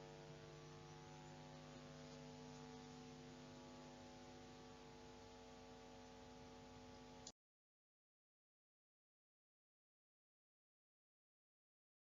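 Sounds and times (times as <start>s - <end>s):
faint electrical hum: 0.0s - 7.3s.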